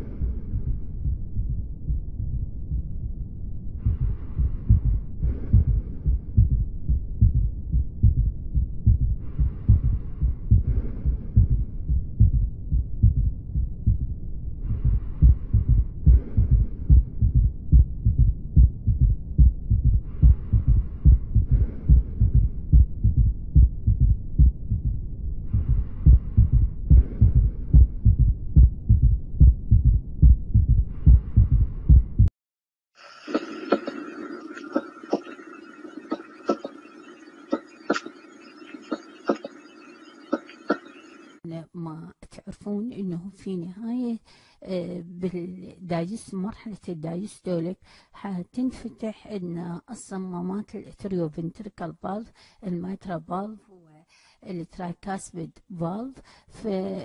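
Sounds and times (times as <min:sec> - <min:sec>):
heartbeat through stethoscope: 0:00.0 - 0:32.3, 0:33.3 - 0:41.4.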